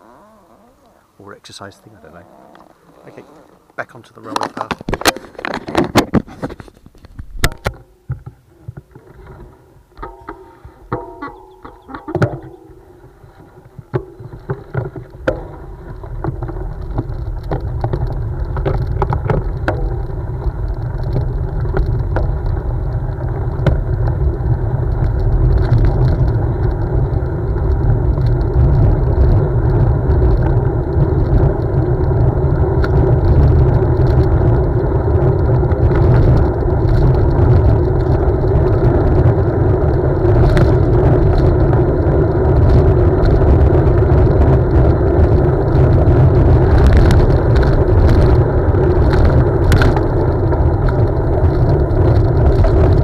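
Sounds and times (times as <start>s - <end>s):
bike tyres rolling on gravel: 0.0s - 53.0s
bike clicks and rattles: 3.7s - 53.0s
wind rushing over microphone: 11.9s - 53.0s.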